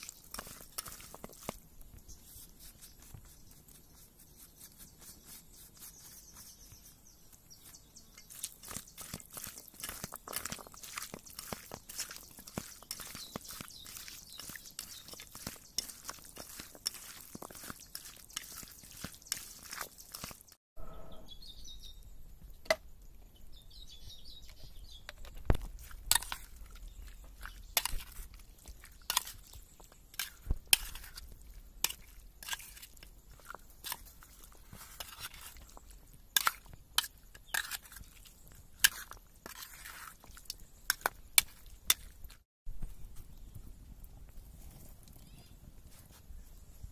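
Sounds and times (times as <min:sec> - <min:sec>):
hand squeezing raw chicken: 0:00.0 - 0:20.6.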